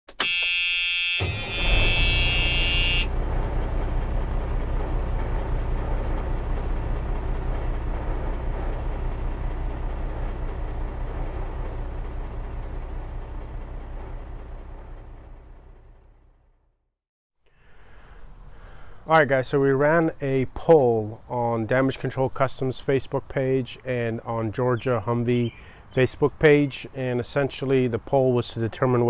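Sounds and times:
vehicle horn: 0:00.1 - 0:03.3
low pulsing engine rumble: 0:01.2 - 0:16.6.

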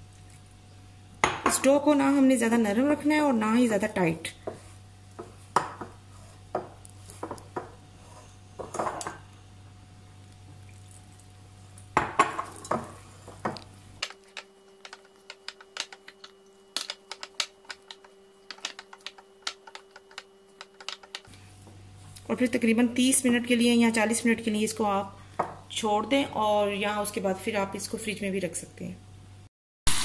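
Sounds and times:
dough knocking against glass bowl: 0:05.2 - 0:06.0.

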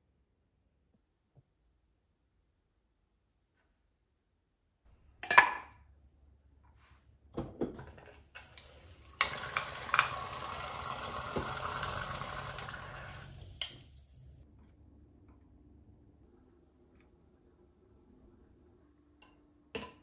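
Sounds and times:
glass clink: 0:05.2 - 0:05.8
water running from tap into glass: 0:08.4 - 0:14.4.

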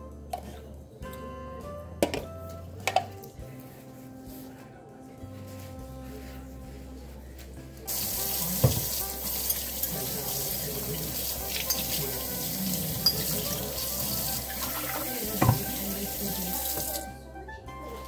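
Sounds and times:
faucet running into steel sink: 0:07.9 - 0:17.1.

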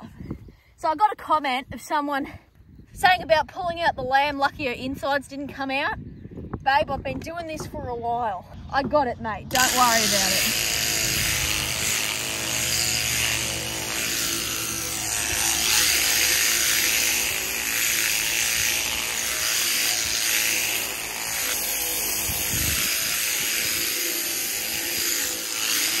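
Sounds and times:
low hum: 0:08.4 - 0:25.7
electric shearing handpiece buzzing: 0:09.5 - 0:26.0.

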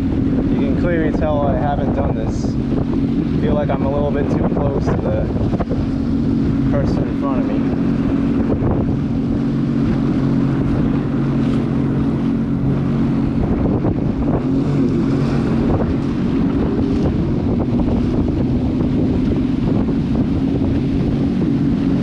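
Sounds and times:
jet ski engine running: 0:00.0 - 0:22.0
wind buffeting microphone: 0:00.0 - 0:22.0.

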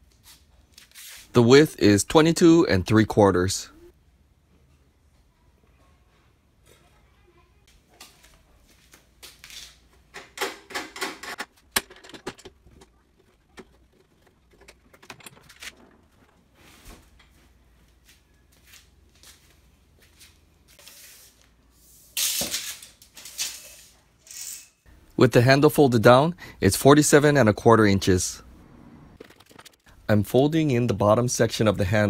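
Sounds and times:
handling clicks knocks and rattles: 0:10.1 - 0:16.4.

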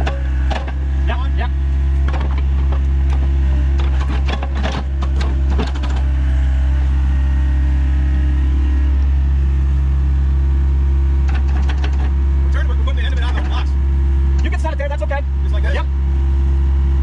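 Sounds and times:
sharp knocks and clanks: 0:00.0 - 0:00.8, 0:02.0 - 0:06.1, 0:11.2 - 0:12.2, 0:13.1 - 0:13.8
diesel engine running: 0:00.0 - 0:17.0.

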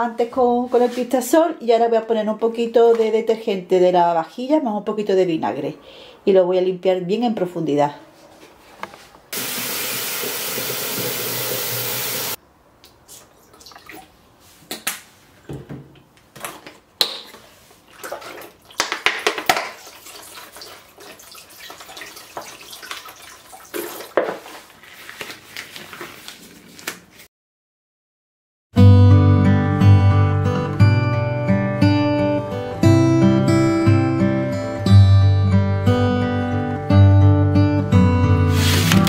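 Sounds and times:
liquid pouring into bucket: 0:09.4 - 0:12.4, 0:17.9 - 0:24.2
tap water running into bucket: 0:09.4 - 0:12.4, 0:18.0 - 0:24.3.

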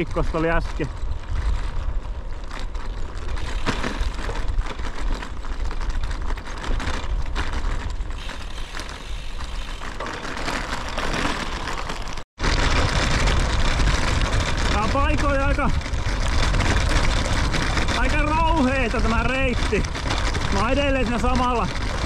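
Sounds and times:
wind buffeting microphone: 0:00.0 - 0:09.8
bicycle tyres rolling on gravel: 0:00.0 - 0:22.0.

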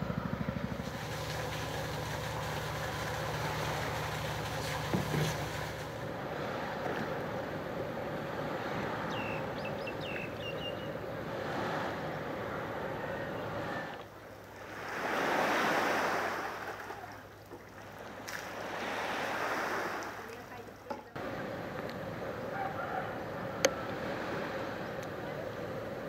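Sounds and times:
water wash: 0:00.0 - 0:26.0
bird chirping: 0:09.1 - 0:11.0
faint hum: 0:20.2 - 0:26.0.

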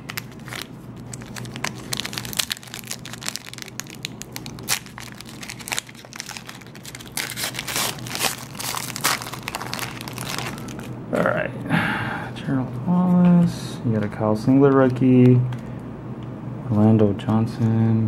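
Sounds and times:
foil wrapper tearing and crinkling: 0:00.0 - 0:11.0.

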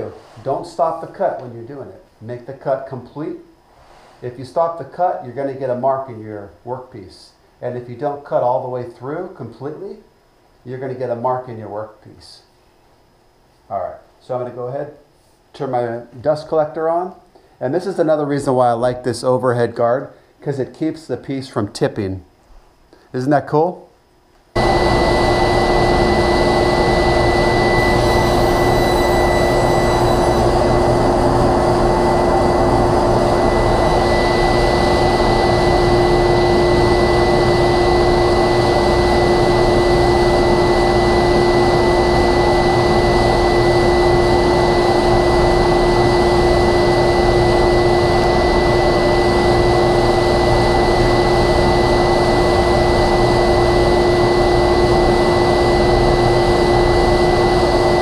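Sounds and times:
dust collector running: 0:24.6 - 0:58.0.

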